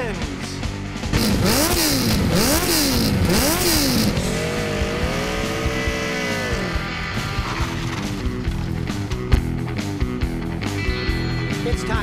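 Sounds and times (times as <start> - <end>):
motorcycle engine revving: 0.9 - 10.4.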